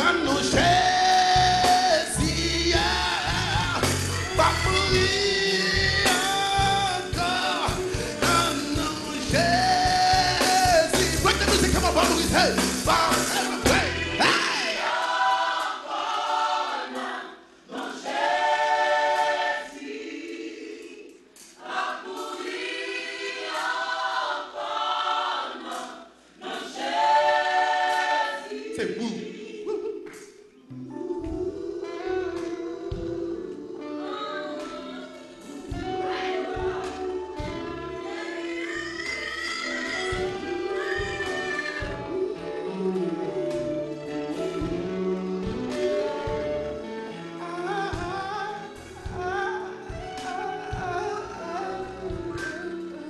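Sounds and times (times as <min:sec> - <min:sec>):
gospel group singing in harmony: 0:00.0 - 0:53.0
band with bass and drums: 0:00.3 - 0:14.2.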